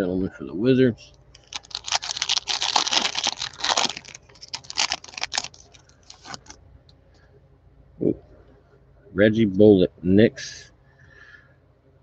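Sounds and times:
plastic wrapper crinkling and tearing: 1.3s - 6.6s.

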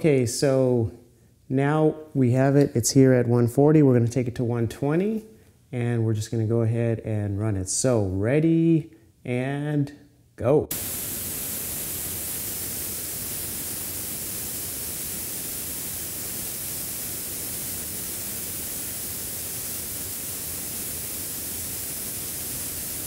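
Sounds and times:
compressed air hissing from spray gun: 10.7s - 23.0s.

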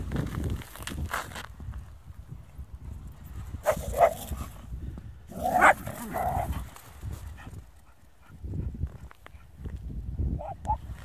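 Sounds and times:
dog barking: 5.5s - 6.5s, 10.4s - 10.8s.

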